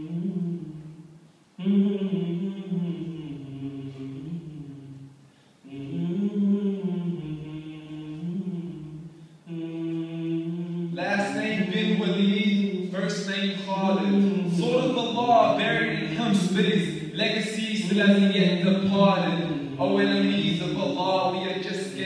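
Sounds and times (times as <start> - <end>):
man chanting: 9.5 - 22.0.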